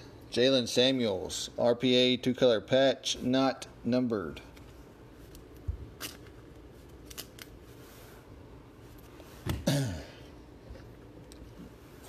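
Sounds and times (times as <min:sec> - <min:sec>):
cards clicking and scraping: 0:05.3 - 0:07.6.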